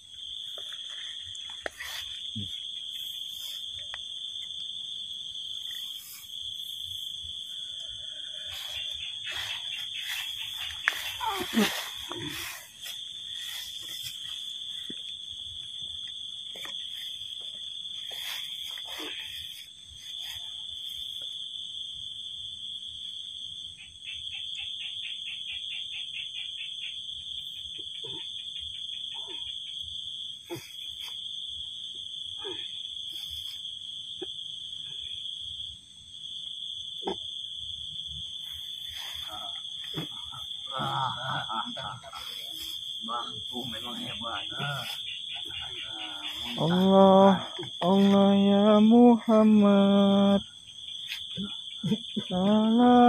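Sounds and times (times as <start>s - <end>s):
night insects chorus: 0.0s - 53.0s
rapid pulsing call: 8.2s - 14.9s, 38.8s - 48.9s.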